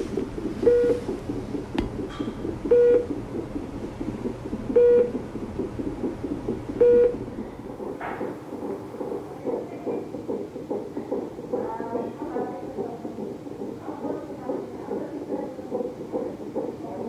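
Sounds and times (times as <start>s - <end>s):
fetal heartbeat whooshing: 0.0s - 17.0s.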